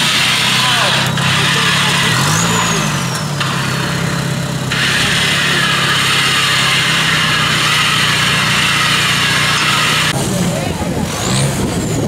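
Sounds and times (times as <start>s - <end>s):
diesel engine running at low revs: 0.0s - 12.0s.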